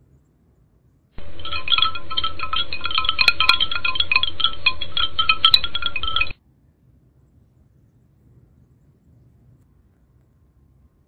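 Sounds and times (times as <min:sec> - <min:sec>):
rapid high tinkling notes: 0:01.2 - 0:06.3
steady low hum: 0:01.2 - 0:06.3.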